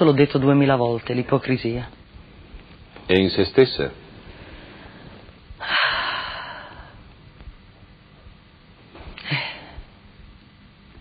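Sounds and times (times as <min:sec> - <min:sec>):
woman breathing: 0:04.2 - 0:07.2.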